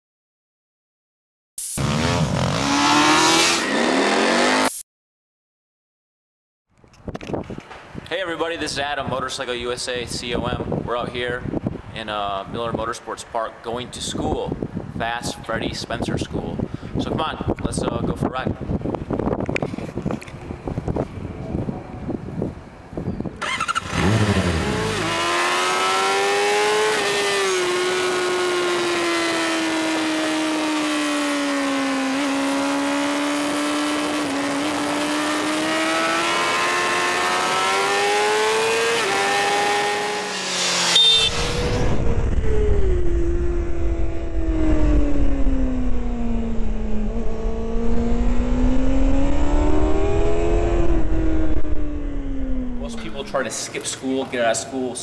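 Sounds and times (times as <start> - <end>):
motorcycle engine revving: 1.7 - 4.8, 23.4 - 53.4
wind rumble on microphone: 6.8 - 13.0, 13.8 - 23.5, 41.4 - 53.6.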